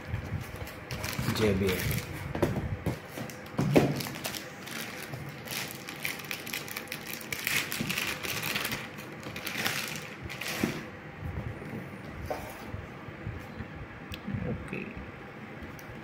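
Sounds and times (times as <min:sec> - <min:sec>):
plastic shrink-wrap crinkling: 0:00.4 - 0:02.2, 0:03.2 - 0:10.9.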